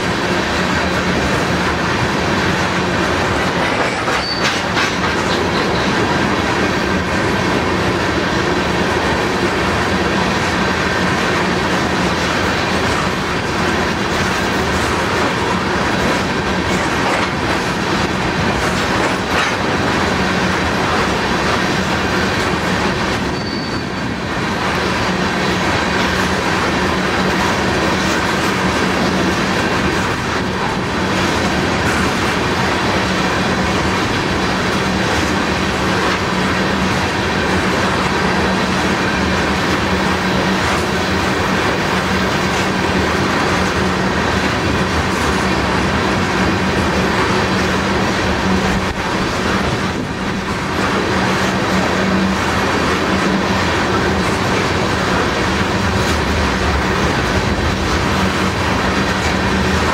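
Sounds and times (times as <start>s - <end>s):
train wheels rumbling on rails: 0.0s - 59.9s
clicking over rail joints: 0.2s - 7.7s, 8.7s - 23.3s
high wheel squeal: 4.0s - 4.7s, 23.2s - 24.2s.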